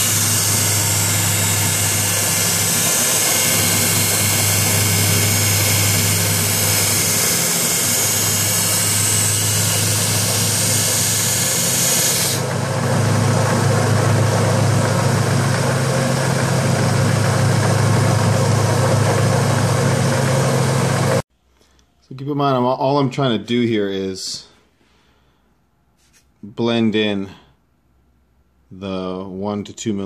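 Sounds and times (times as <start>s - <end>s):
belt sander humming: 0.0s - 21.2s
blade grinding on sander belt: 0.0s - 21.2s.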